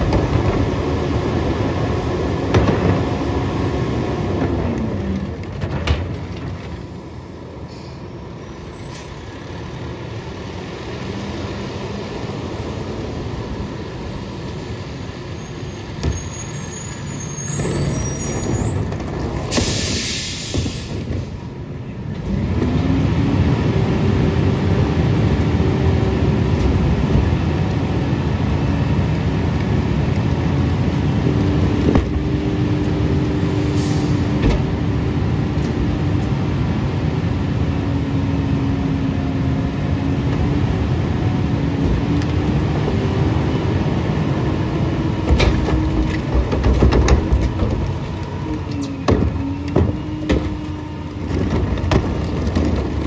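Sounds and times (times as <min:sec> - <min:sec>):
diesel truck engine roaring: 0:00.0 - 0:53.0
hydraulic hiss: 0:19.5 - 0:20.9
bins banging: 0:45.2 - 0:48.2, 0:49.0 - 0:53.0.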